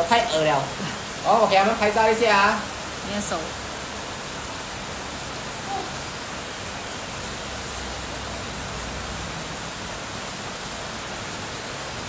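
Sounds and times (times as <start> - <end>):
rain hissing: 0.0 - 12.0.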